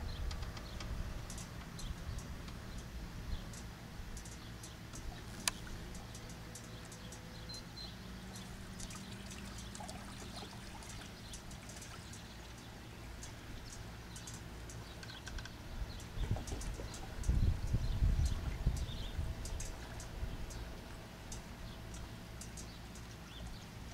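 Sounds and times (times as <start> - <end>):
wind rumble on microphone: 0.0 - 6.2, 15.2 - 22.0
water trickling and splashing: 4.2 - 14.8, 16.0 - 23.9.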